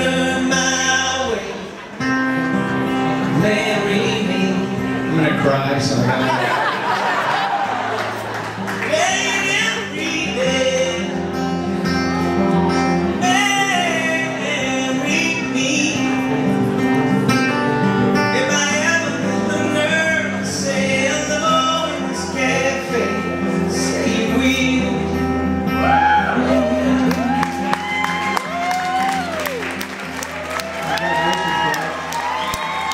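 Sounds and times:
man singing: 0:00.0 - 0:06.3, 0:08.7 - 0:28.4
acoustic guitar: 0:00.0 - 0:32.9.

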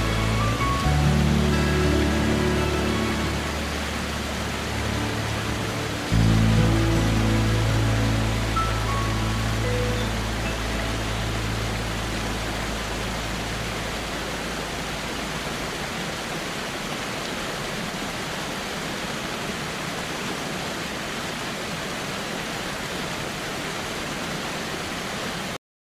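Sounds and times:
low musical drone: 0:00.0 - 0:15.2
waterfall rushing: 0:00.0 - 0:25.6.

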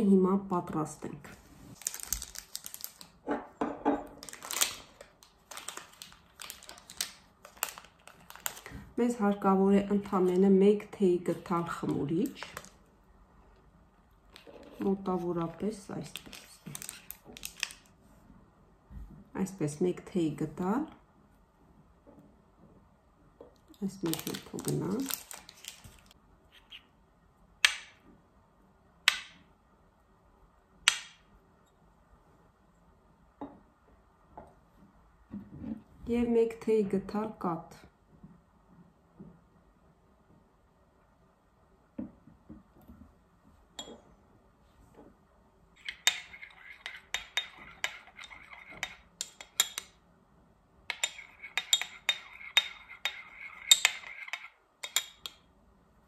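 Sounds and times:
teaspoon clinking in ceramic bowl: 0:45.8 - 0:49.9, 0:50.9 - 0:55.4.

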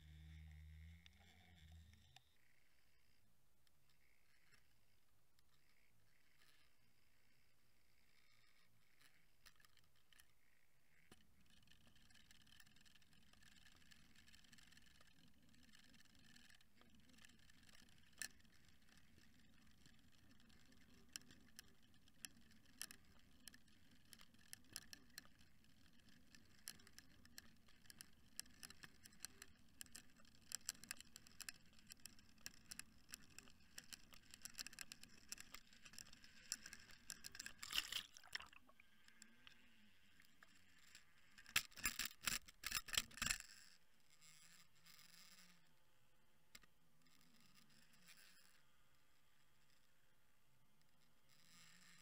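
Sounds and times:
sharp underwater clicks: 0:17.4 - 0:40.5.

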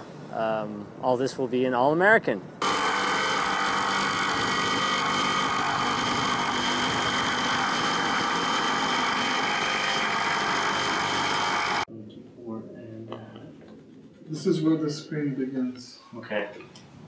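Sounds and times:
jigsaw cutting wood: 0:02.6 - 0:11.9.

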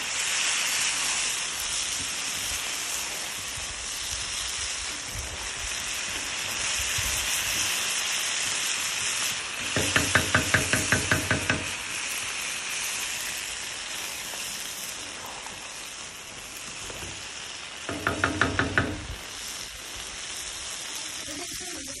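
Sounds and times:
food sizzling in a pan: 0:00.0 - 0:22.0
wooden spatula knocking on pan: 0:09.6 - 0:11.8, 0:17.9 - 0:19.2.

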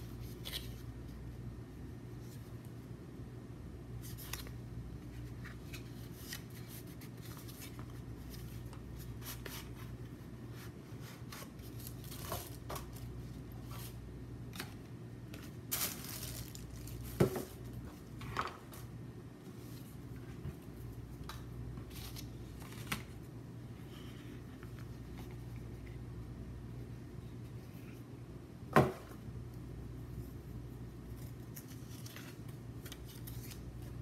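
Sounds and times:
steady low hum: 0:00.0 - 0:34.0
boxes and paper rustling: 0:04.0 - 0:14.0, 0:14.6 - 0:18.9, 0:21.8 - 0:23.2.

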